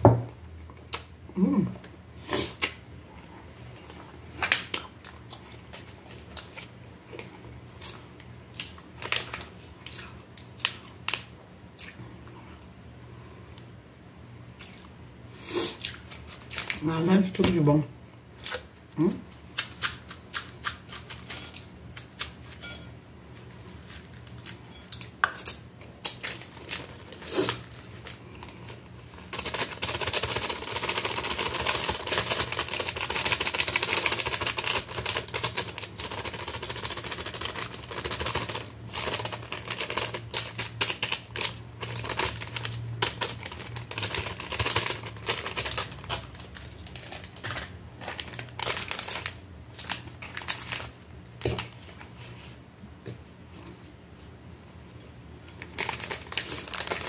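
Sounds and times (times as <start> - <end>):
plastic snack bag crinkling: 8.6 - 11.3, 15.9 - 17.6, 23.7 - 52.0, 55.5 - 57.0
dry potato sticks crackling: 25.4 - 51.8, 55.5 - 57.0.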